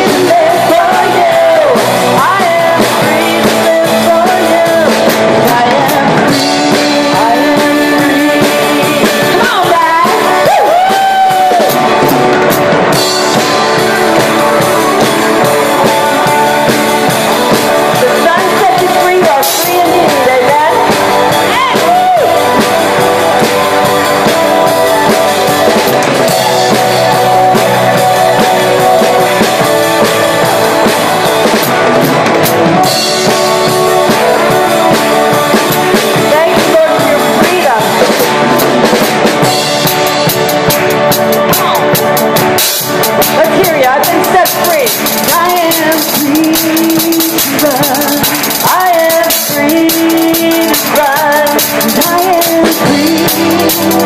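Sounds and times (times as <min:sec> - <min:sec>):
drum kit: 0:00.0 - 0:54.0
guitars: 0:00.0 - 0:54.0
live band playing: 0:00.0 - 0:54.0
person singing: 0:00.0 - 0:54.0.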